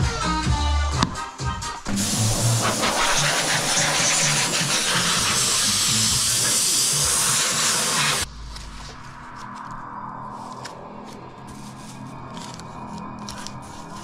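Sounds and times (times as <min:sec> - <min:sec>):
compressed air blow gun hissing: 0:01.9 - 0:08.3.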